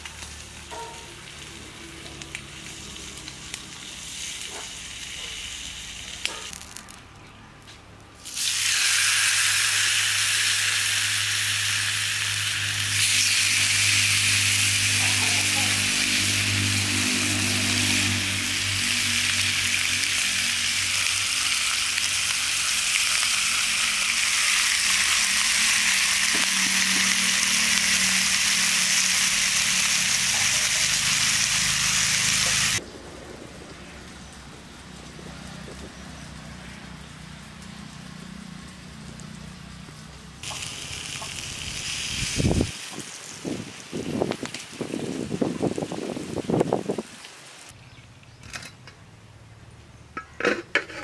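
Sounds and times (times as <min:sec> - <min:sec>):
fish sizzling in oil: 0:00.0 - 0:06.9, 0:08.2 - 0:32.8, 0:37.2 - 0:47.7.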